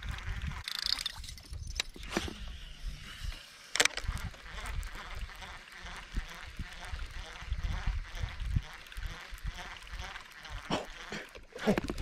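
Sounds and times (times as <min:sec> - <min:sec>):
fishing reel clicks and knocks: 0:00.1 - 0:02.2, 0:03.7 - 0:05.2.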